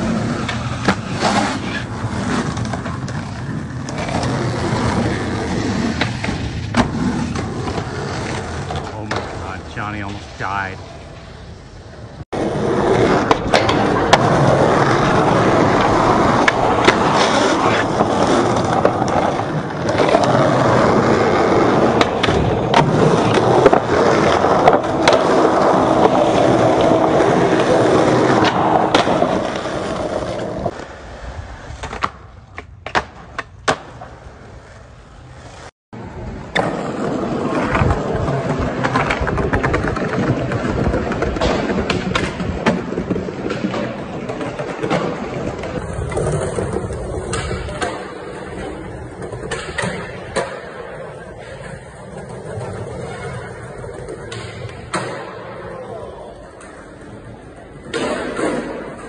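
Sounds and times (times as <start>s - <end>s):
skateboard wheels rolling on concrete: 0.0s - 59.0s
skateboard clacking on ground: 12.4s - 30.9s, 31.7s - 34.2s, 36.4s - 59.0s.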